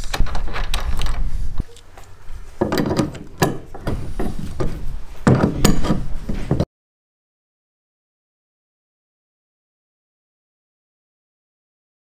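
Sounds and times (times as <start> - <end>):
wrench clicking and scraping on bolt: 0.0 - 4.6, 5.3 - 6.1.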